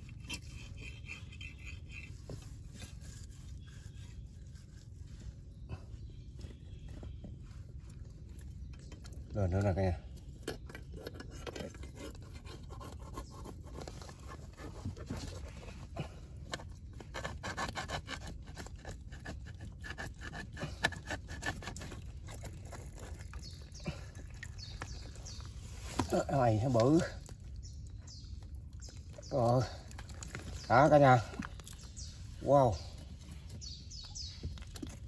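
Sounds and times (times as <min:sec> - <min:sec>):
scraping and clicking in mud: 0:00.0 - 0:05.5, 0:06.2 - 0:35.0.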